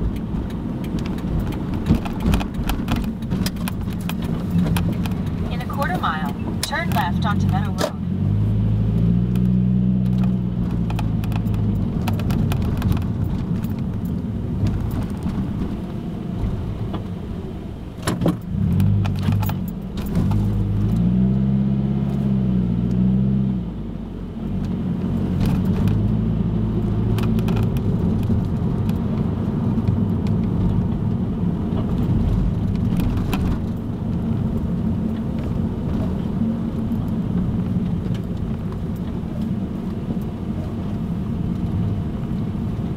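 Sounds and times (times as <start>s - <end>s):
light clicks and rattles: 0.0s - 7.9s, 10.1s - 15.8s
car engine and tyre noise: 0.0s - 42.9s.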